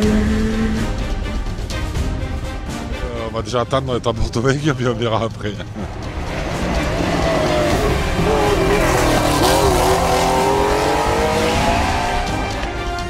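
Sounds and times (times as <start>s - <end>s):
car engine accelerating: 5.8s - 12.8s.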